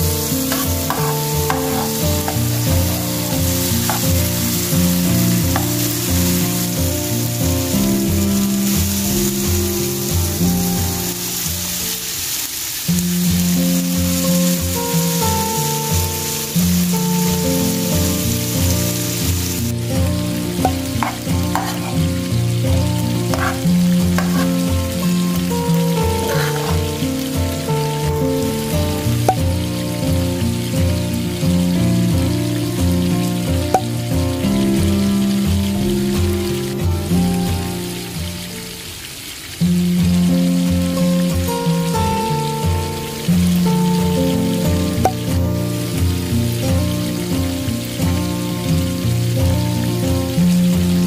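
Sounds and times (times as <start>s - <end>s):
background music with low notes: 0.0s - 12.2s, 12.9s - 38.9s, 39.5s - 51.0s
vegetables sizzling in a pan: 0.0s - 51.0s
metal spoon scraping pan: 0.3s - 4.4s, 20.7s - 22.2s, 23.3s - 24.8s, 25.9s - 27.0s.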